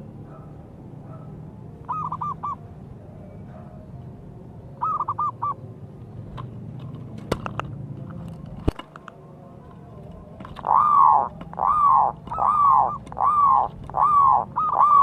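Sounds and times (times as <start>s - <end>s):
dove cooing: 1.1s - 3.9s, 4.7s - 5.6s, 9.9s - 15.0s.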